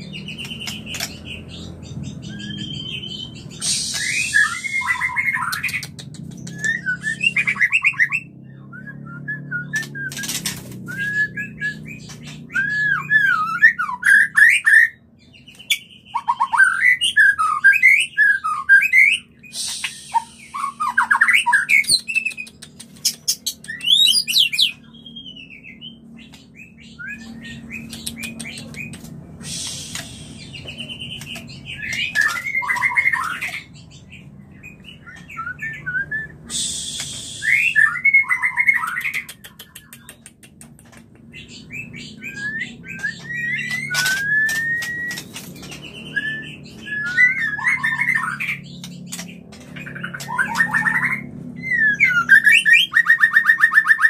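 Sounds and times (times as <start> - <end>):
birds whistling calls: 0.0 - 54.0
harsh rasping bird notes: 2.3 - 8.2, 16.4 - 24.8, 27.0 - 33.7, 35.0 - 53.1.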